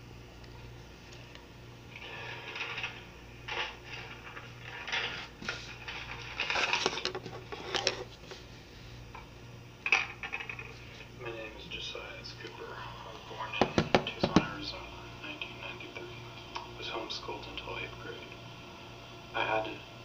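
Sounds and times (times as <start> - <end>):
faint pulsing low hum: 0.0 - 20.0
objects clattering on a table: 2.4 - 8.1, 9.9 - 10.8.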